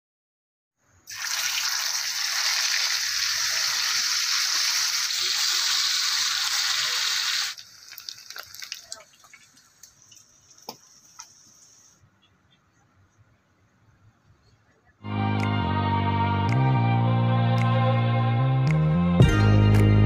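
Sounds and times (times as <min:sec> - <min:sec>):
fish sizzling in hot oil: 0:01.1 - 0:11.9
scattered crackles: 0:06.8 - 0:12.0.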